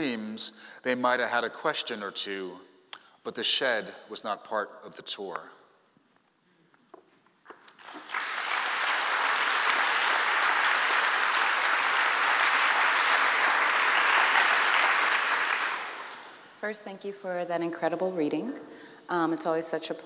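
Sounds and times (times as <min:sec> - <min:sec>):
audience applauding: 0:07.7 - 0:16.5.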